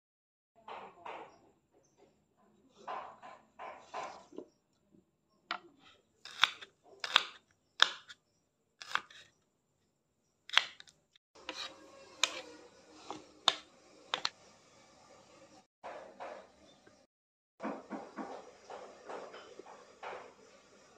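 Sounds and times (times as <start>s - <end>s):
knife chopping on wooden board: 6.2s - 8.2s, 8.8s - 9.3s, 10.5s - 12.5s, 13.1s - 14.3s.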